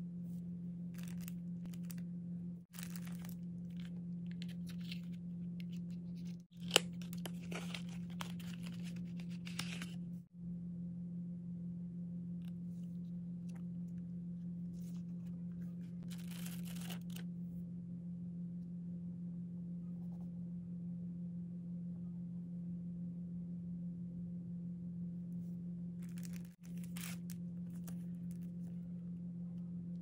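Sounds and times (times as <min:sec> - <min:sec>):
steady low hum: 0:00.0 - 0:30.0
paper rustling and riffling: 0:01.0 - 0:02.0, 0:02.7 - 0:10.0, 0:15.9 - 0:17.2, 0:26.0 - 0:28.8.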